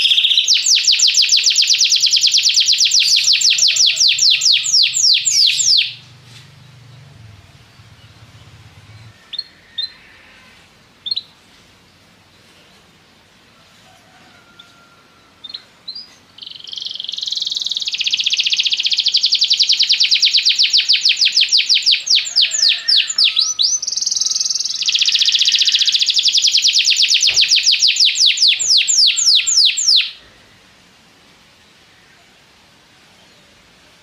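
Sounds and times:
canary singing trills: 0.0s - 10.2s, 11.0s - 11.4s, 15.4s - 30.2s.

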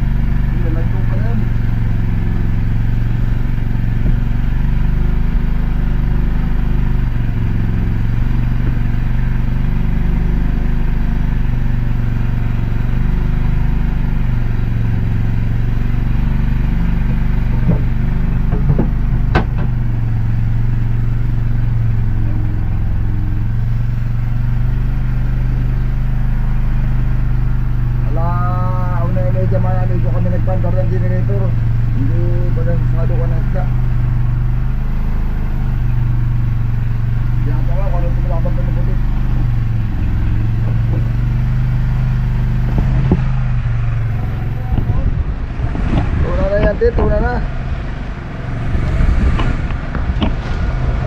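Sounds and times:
boat engine running: 0.0s - 51.0s
sharp knock: 18.5s - 19.8s.

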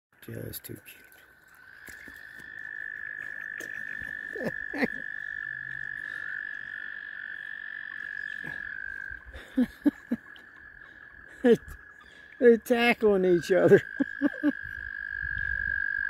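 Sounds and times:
toad trilling: 1.3s - 16.0s.

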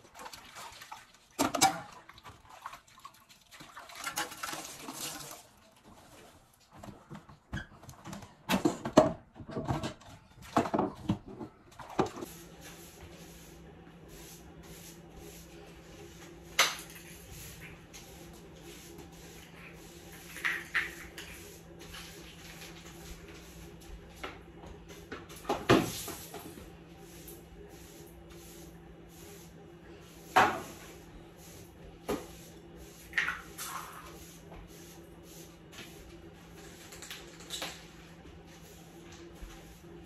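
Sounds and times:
knocks and clatter of objects: 6.8s - 12.3s.

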